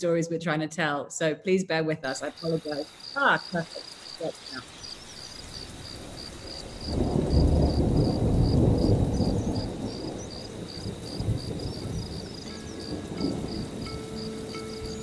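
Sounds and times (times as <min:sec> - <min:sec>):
insect chirping: 0:02.0 - 0:15.0
thunder rolling: 0:05.0 - 0:15.0
soft sustained musical tones: 0:11.6 - 0:15.0.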